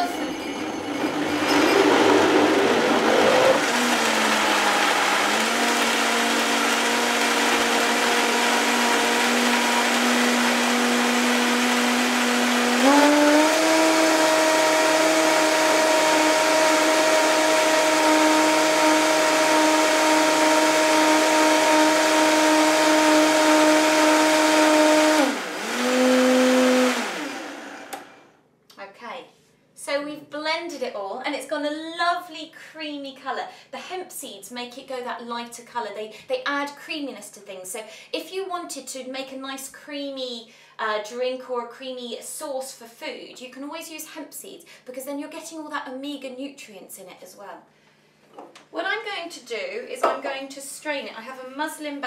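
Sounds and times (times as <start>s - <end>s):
blender motor whine: 1.5s - 28.3s.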